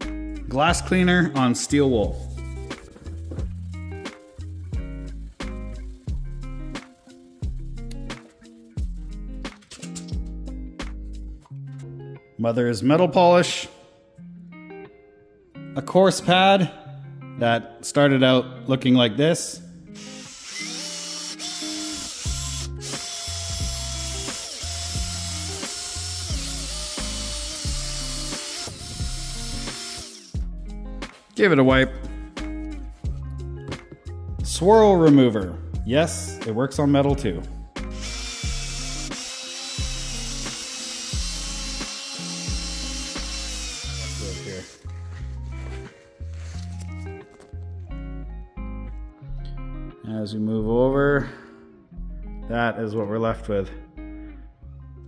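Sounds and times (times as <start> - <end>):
background music with bass line: 0.0 - 12.3, 21.4 - 55.0
drill polishing metal: 20.0 - 30.4, 37.9 - 44.9.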